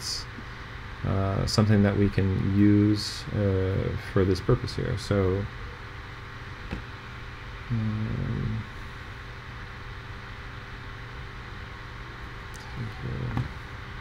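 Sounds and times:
background hiss with hum: 0.0 - 14.0
man humming: 7.6 - 8.9, 12.6 - 13.6.

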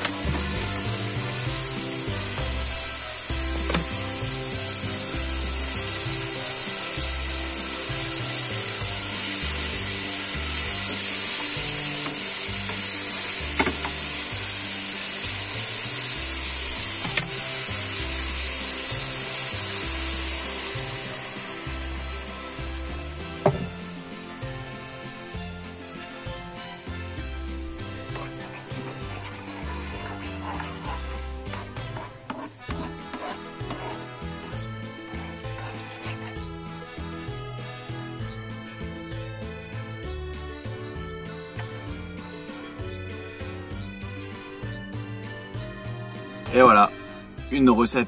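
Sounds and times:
food sizzling in a frying pan: 0.0 - 36.3
background music with bass: 0.0 - 48.0.

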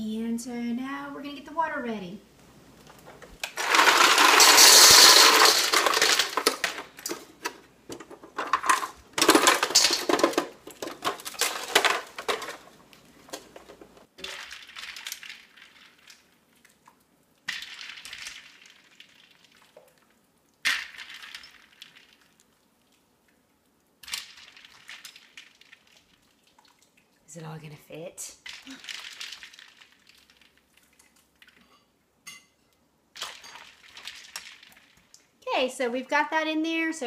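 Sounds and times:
ice cubes clattering into metal bowl: 3.4 - 7.3, 8.3 - 12.7, 13.4 - 16.3, 17.5 - 19.5, 20.6 - 22.3, 24.0 - 26.1, 28.4 - 30.7, 33.2 - 35.1
corn cobs set into ice: 3.4 - 7.5, 8.3 - 16.7, 17.5 - 19.8, 20.6 - 22.4, 24.0 - 26.4, 28.4 - 31.6, 33.1 - 35.2.

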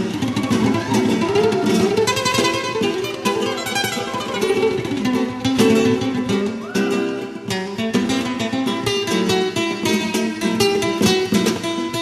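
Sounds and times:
nylon-string flamenco guitar: 0.0 - 12.0
steel-string acoustic guitar: 0.0 - 12.0.

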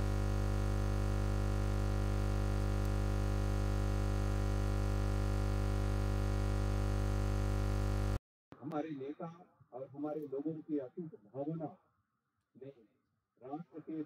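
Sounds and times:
electronic buzzing drone: 0.0 - 8.2.

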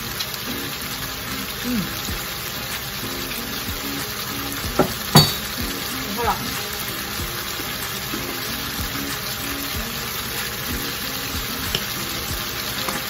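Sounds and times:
squid sizzling in a frying pan: 0.0 - 13.0
sharp pops from frying pan: 4.7 - 5.8, 11.4 - 13.0.

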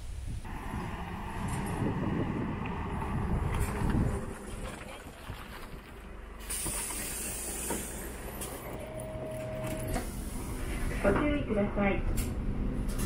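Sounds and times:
bus engine idling: 0.2 - 13.0
compressed air hissing: 6.4 - 8.2.

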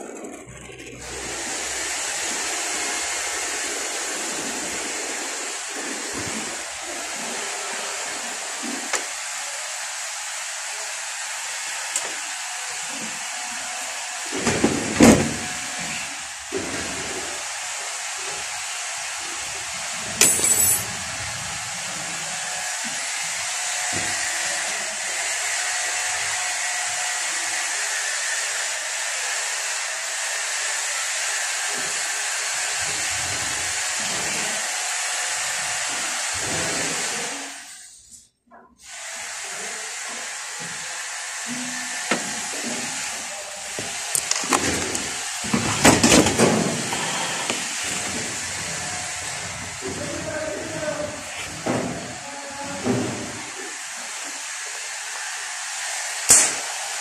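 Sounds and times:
torch flame hissing: 41.8 - 55.2.

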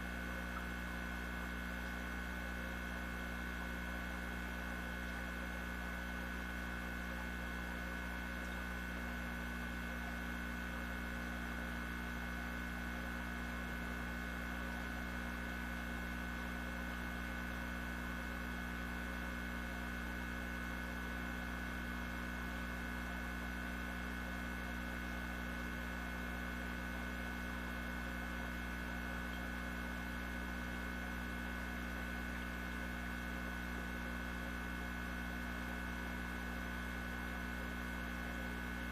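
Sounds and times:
electrical hum: 0.0 - 38.9.

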